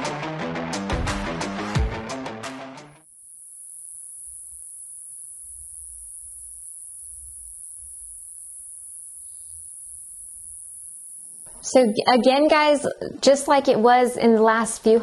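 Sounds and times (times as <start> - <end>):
music: 0.0 - 3.0
high-pitched insect drone: 3.0 - 11.8.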